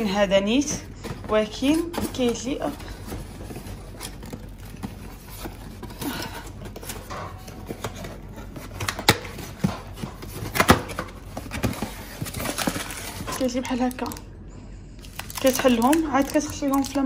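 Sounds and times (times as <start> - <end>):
cardboard flaps rustling: 0.5 - 13.6.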